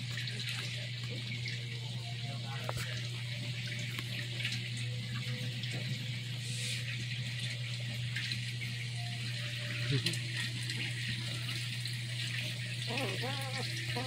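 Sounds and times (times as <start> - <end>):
puppy squeaking: 12.9 - 14.0.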